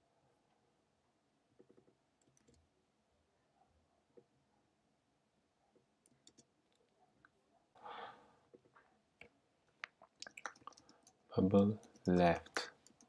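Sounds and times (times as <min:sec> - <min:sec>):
keyboard and mouse clicks: 0:01.6 - 0:02.6, 0:06.0 - 0:06.9, 0:08.6 - 0:13.0.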